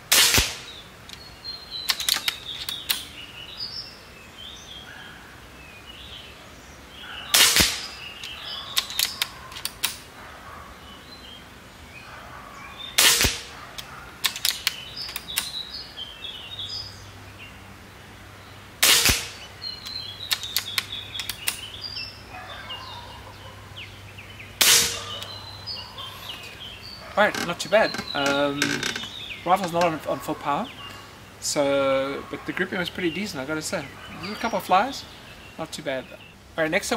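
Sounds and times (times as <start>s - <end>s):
air rifle shots: 0.0s - 0.8s, 7.3s - 8.0s, 13.0s - 13.6s, 18.8s - 19.5s, 24.6s - 25.4s
birds chirping: 0.0s - 36.9s.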